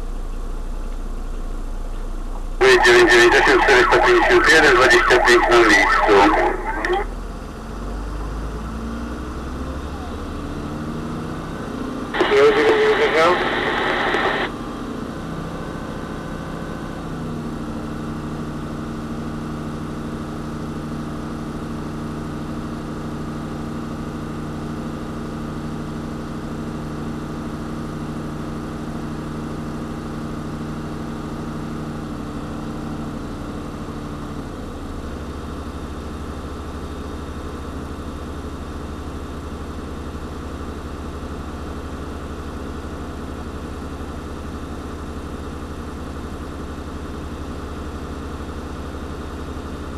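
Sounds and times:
fire engine running: 0.0 - 49.9
held hum: 2.3 - 7.2, 12.2 - 14.5.

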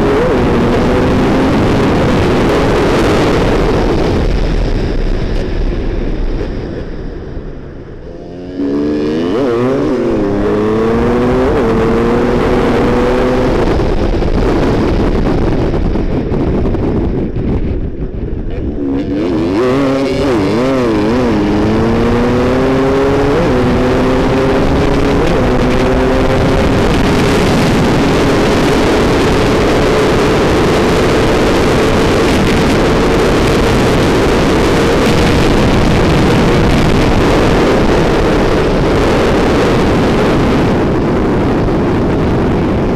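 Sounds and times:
dirt bike engine revving: 8.0 - 14.1, 18.5 - 40.5.

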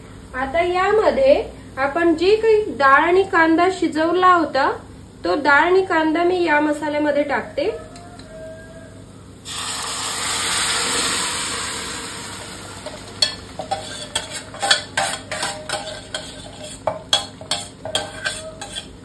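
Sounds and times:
loud sizzle in hot oil: 9.4 - 19.0
metal ladle scraping steel pan: 12.8 - 19.0.

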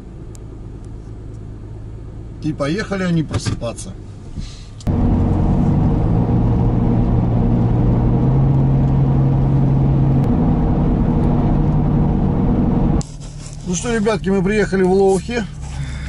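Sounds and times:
car engine and tyre drone: 3.9 - 16.0.

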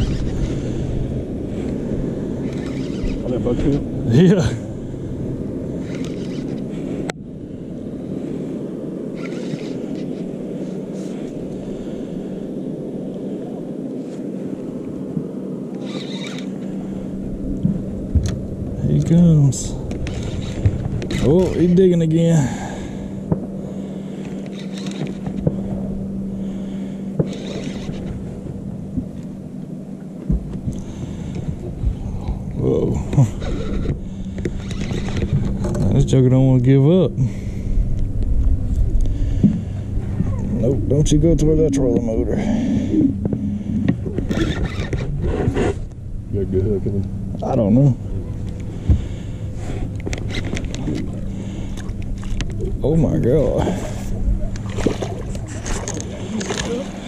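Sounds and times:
electric motor humming: 0.0 - 4.4, 5.7 - 6.8, 9.1 - 10.3, 15.7 - 18.7, 19.8 - 21.8, 23.8 - 35.9, 37.8 - 52.6
wind buffeting microphone: 0.0 - 57.0
fishing reel clicks: 5.8 - 6.6, 15.8 - 16.5, 20.0 - 21.6, 34.5 - 35.4.

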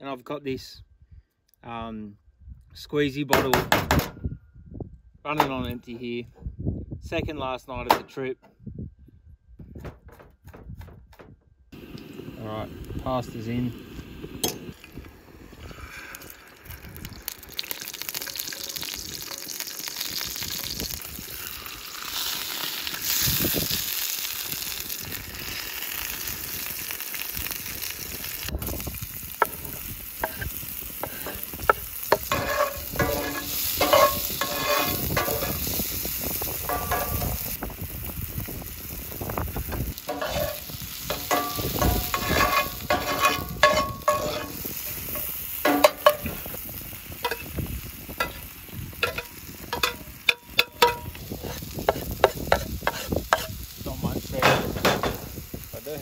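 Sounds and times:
food sizzling in oil: 11.8 - 56.0
utensils scraping and knocking pan: 29.4 - 35.7, 36.6 - 37.4, 40.1 - 46.4, 47.2 - 47.5, 48.2 - 48.4, 49.0 - 53.6.

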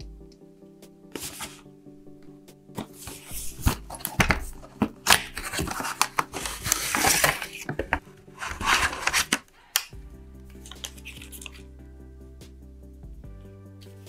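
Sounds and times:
soft music: 0.0 - 14.0
cardboard packaging rustling: 1.2 - 1.7, 2.8 - 9.9.

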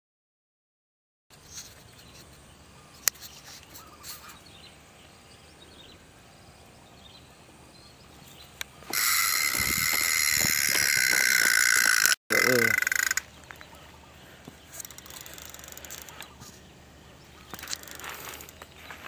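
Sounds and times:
faint bird chirps: 1.4 - 8.6
loud high-pitched buzzing: 8.8 - 13.3.

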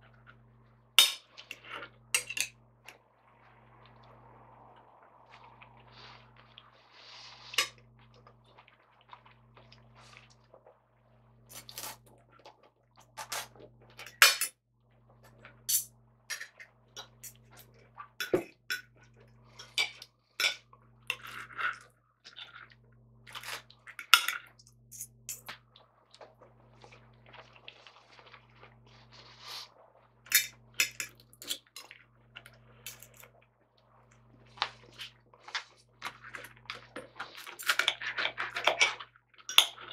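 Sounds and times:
cutlery clinking and scraping plate: 2.2 - 2.5.

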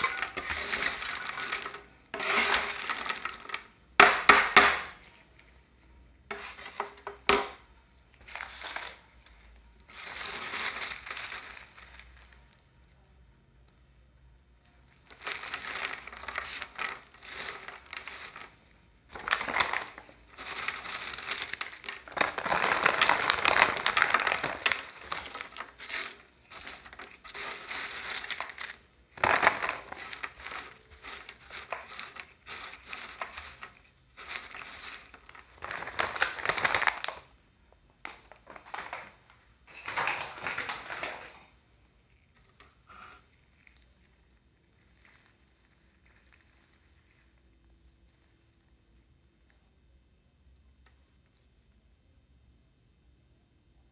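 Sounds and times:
dry snacks crunching: 15.0 - 37.3.

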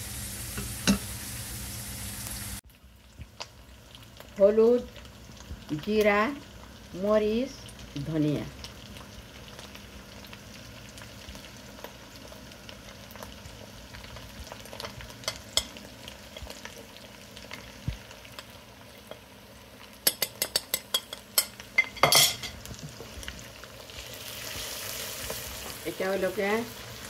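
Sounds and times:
onions sizzling in oil: 0.0 - 27.0
steel spoon clicking on pan: 15.3 - 15.8, 20.0 - 22.5.

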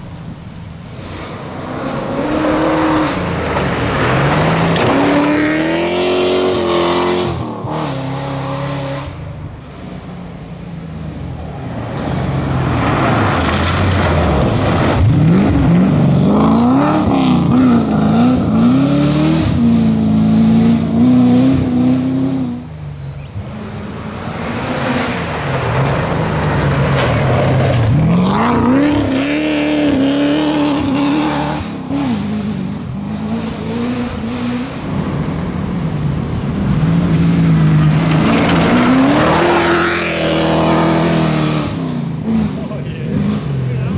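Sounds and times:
tyres sliding on gravel: 0.0 - 6.3, 11.3 - 16.6, 25.1 - 29.2, 36.3 - 41.1
rally car engine revving: 0.9 - 43.9.

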